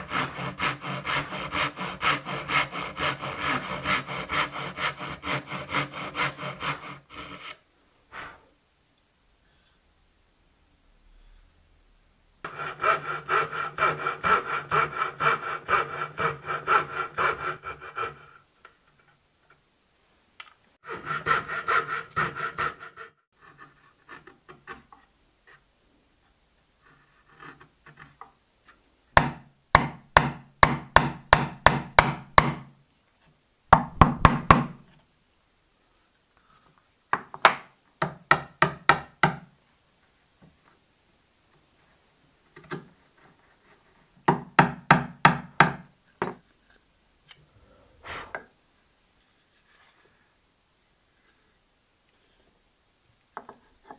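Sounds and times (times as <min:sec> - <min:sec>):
fret saw sawing hardwood: 0:00.0 - 0:07.6, 0:12.4 - 0:18.4, 0:20.8 - 0:24.2
chisel paring wood: 0:29.2 - 0:32.6, 0:33.7 - 0:34.8, 0:44.3 - 0:45.8
chisel struck with wooden knocks: 0:29.2 - 0:32.7, 0:33.7 - 0:34.8, 0:37.2 - 0:39.5, 0:44.3 - 0:46.4.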